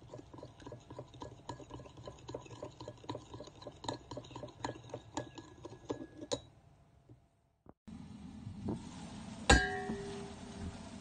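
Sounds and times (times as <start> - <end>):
metal spoon clinking in ceramic bowl: 0.1 - 6.5.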